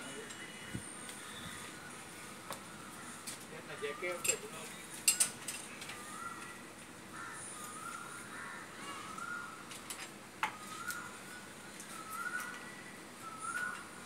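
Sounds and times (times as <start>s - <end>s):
faint wavering whistle: 10.5s - 13.9s.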